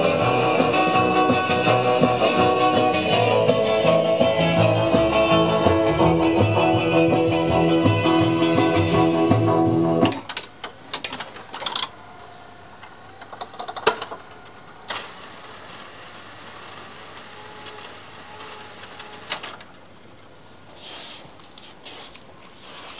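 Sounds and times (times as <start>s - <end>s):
jukebox music: 0.0s - 10.2s
jukebox mechanism clicks: 10.0s - 11.9s
quiet motor whir: 10.3s - 19.8s.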